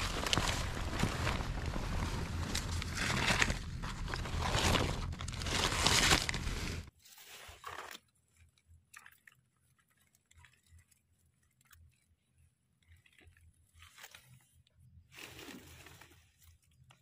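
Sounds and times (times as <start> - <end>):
wet leaves rustling and crunching: 0.0 - 8.0.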